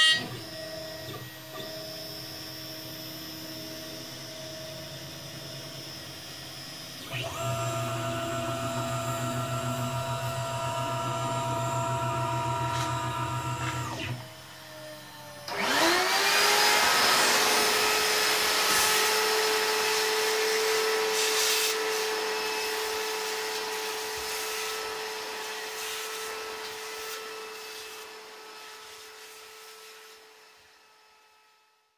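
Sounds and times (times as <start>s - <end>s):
vacuum cleaner motor whine: 0.0s - 31.9s
machine winding down: 5.4s - 25.8s.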